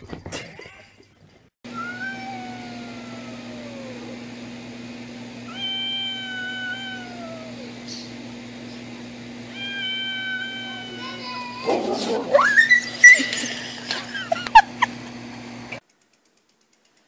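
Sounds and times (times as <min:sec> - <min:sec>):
cat yowling: 0:01.7 - 0:04.2, 0:05.5 - 0:08.1, 0:09.5 - 0:13.5.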